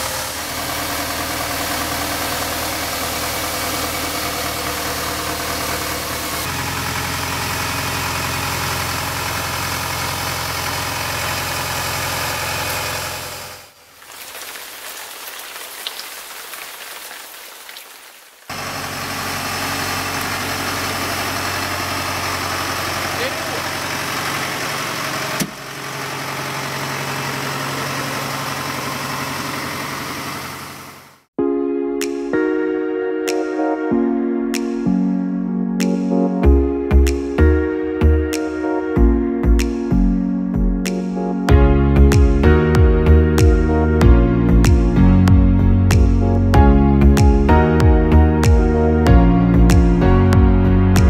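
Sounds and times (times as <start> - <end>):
tractor diesel engine running: 0.0 - 14.0, 18.5 - 31.3.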